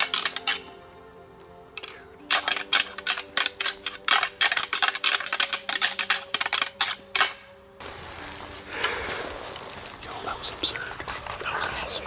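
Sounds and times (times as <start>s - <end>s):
antlers clattering together: 0.0s - 0.7s, 1.8s - 7.5s.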